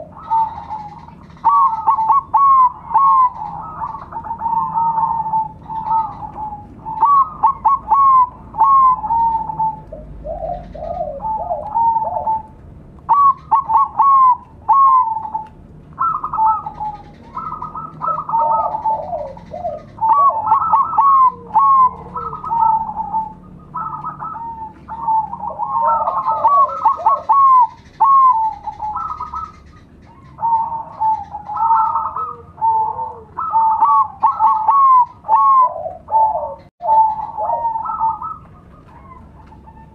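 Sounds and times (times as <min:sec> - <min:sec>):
doves cooing: 0:00.0 - 0:39.9.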